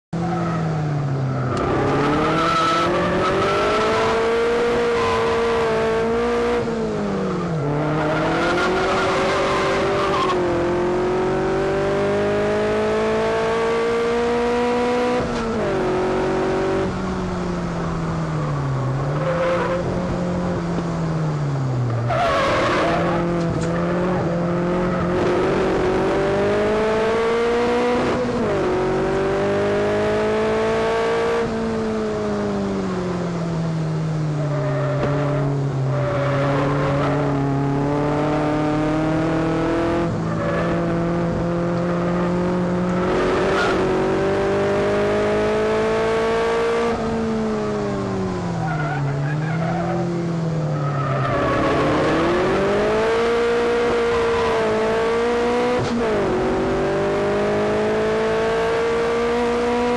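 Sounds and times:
race car engine revving: 1.3s - 20.8s, 21.9s - 33.2s, 34.4s - 59.9s.

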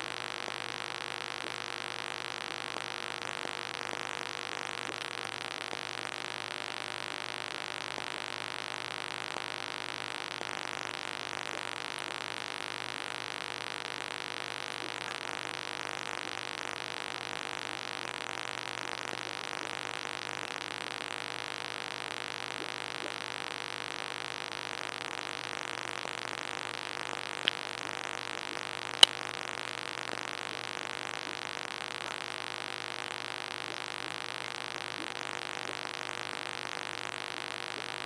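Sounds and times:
sharp clicks: 29.0s - 29.2s.

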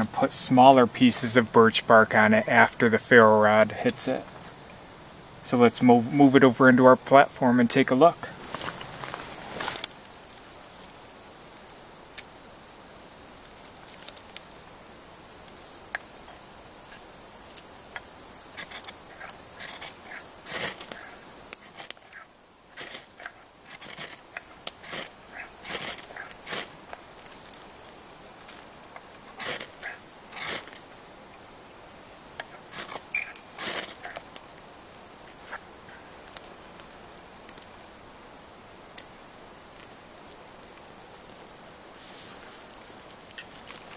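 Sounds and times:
knife scraping ferro rod: 29.4s - 30.8s, 32.5s - 34.2s.

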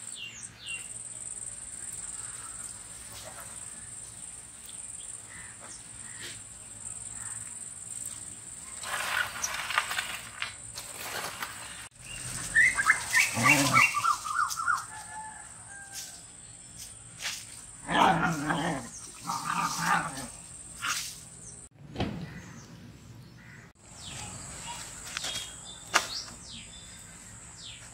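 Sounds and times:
dogs barking or growling: 13.2s - 14.1s, 17.8s - 20.9s.

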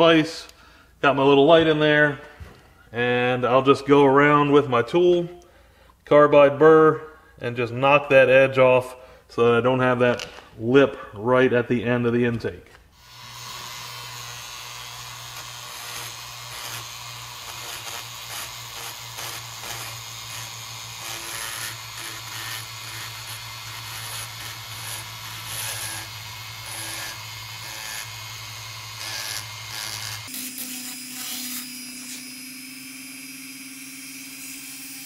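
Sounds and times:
rotary tool motor hum: 13.0s - 35.0s.

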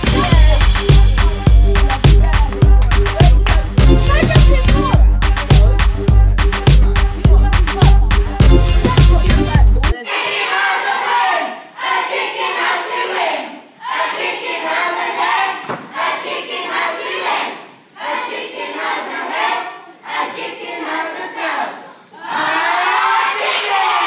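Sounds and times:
children chanting in unison: 10.0s - 24.0s.

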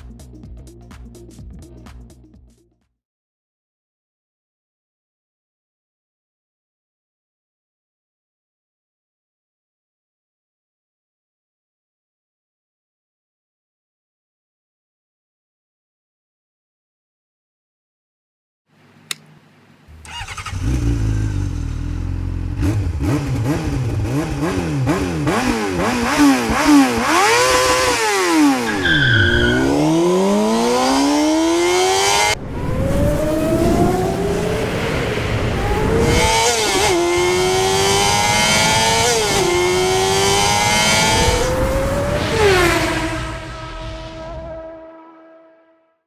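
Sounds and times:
racing car engines revving: 19.9s - 45.0s
car passing by: 32.1s - 37.0s, 41.0s - 45.6s.

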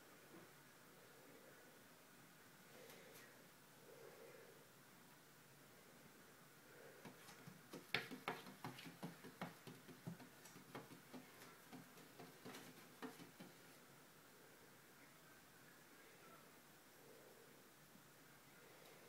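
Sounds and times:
cat paws tapping on glass: 7.1s - 13.6s.

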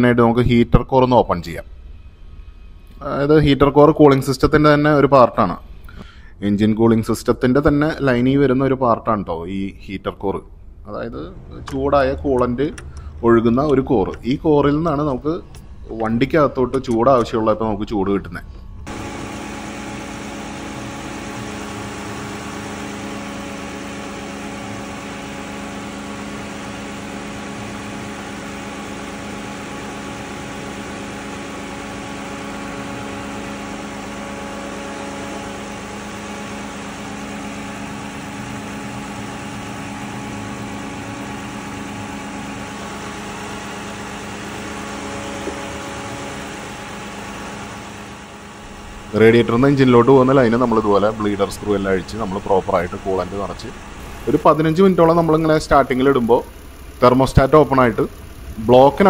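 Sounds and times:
car engine idling: 11.0s - 17.4s, 18.6s - 59.0s.

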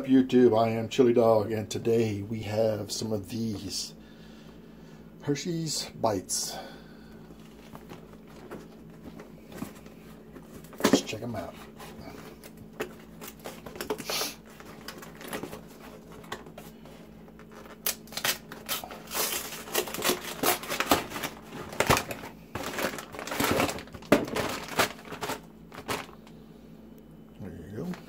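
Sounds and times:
plastic bag crinkling: 7.4s - 26.3s
cardboard carton tearing: 17.5s - 26.1s.

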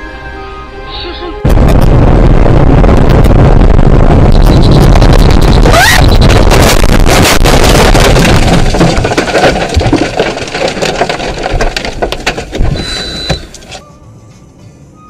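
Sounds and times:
sharp knocks and cracks: 5.7s - 12.8s.

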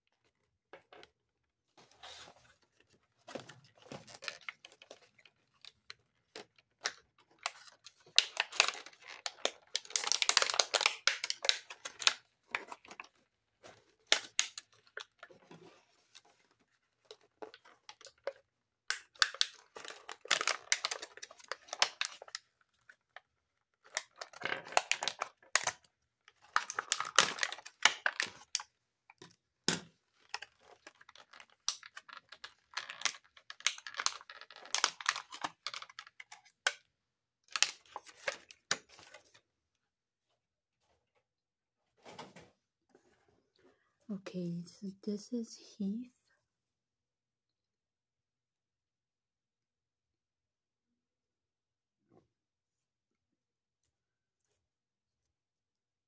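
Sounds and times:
plastic packaging crinkling: 3.3s - 15.3s, 16.0s - 23.0s, 26.4s - 28.6s, 30.1s - 36.5s.

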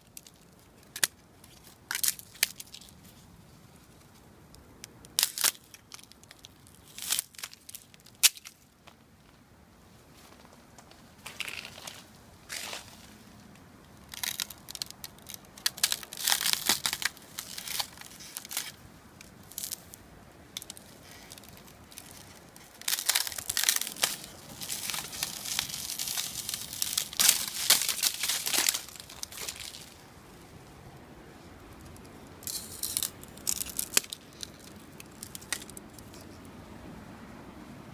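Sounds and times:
ice on leaves crackling: 0.0s - 3.2s, 5.1s - 8.6s, 11.2s - 13.3s, 14.0s - 20.0s, 20.6s - 30.2s, 32.4s - 36.2s.

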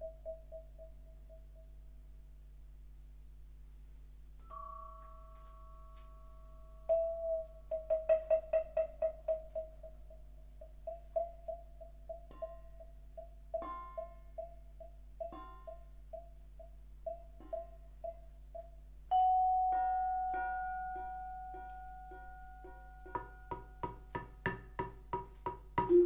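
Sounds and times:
vibraphone played with mallets: 17.1s - 24.2s.

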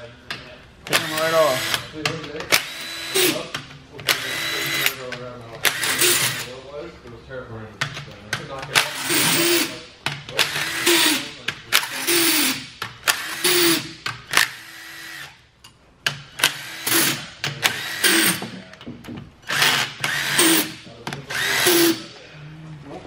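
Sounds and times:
cordless power tool whirring: 16.4s - 18.5s, 19.4s - 22.0s.

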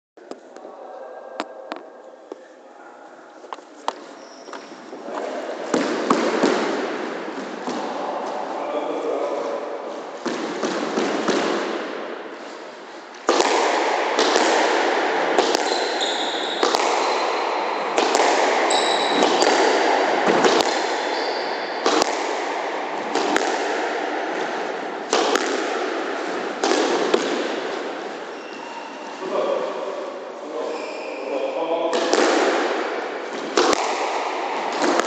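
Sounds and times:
shoes squeaking on wooden floor: 3.4s - 5.5s, 15.6s - 17.2s, 18.7s - 19.5s, 21.0s - 21.7s, 28.2s - 29.2s
squash ball hits: 5.6s - 8.4s, 10.1s - 12.2s, 13.2s - 28.4s, 31.9s - 35.0s.

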